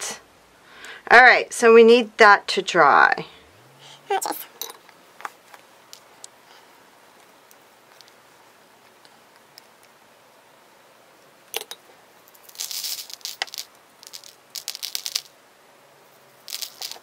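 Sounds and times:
beads pattering onto paper plate: 0:12.2 - 0:15.4, 0:16.4 - 0:17.0.

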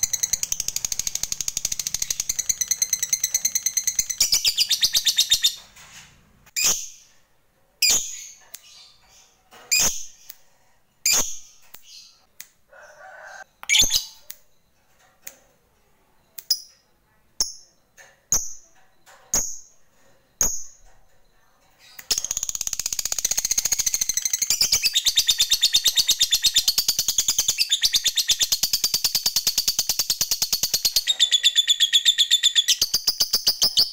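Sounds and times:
lovebird chirps: 0:00.0 - 0:05.7, 0:07.8 - 0:15.4, 0:20.4 - 0:33.9.

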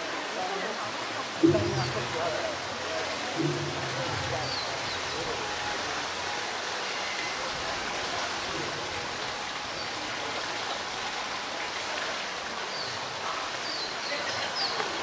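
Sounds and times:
running water from water feature: 0:00.0 - 0:15.0.

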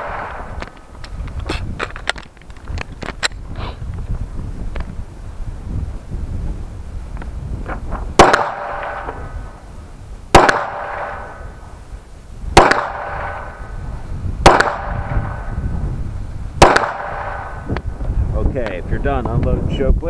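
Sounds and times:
wind rumbling on microphone: 0:00.0 - 0:20.0
pistol shots: 0:08.2 - 0:09.3, 0:10.3 - 0:11.4, 0:12.6 - 0:13.6, 0:14.4 - 0:15.5, 0:16.6 - 0:17.7.

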